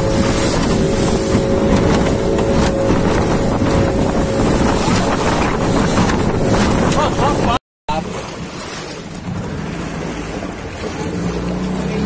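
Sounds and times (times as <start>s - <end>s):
wind buffeting microphone: 0.0s - 7.6s
motorboat engine running: 0.0s - 12.0s
water rushing past hull: 0.0s - 12.0s.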